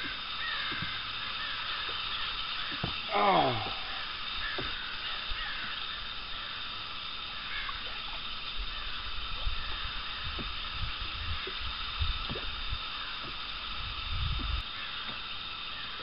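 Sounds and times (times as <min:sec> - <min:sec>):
outdoor hiss: 0:00.0 - 0:16.0
wind buffeting microphone: 0:08.3 - 0:14.6.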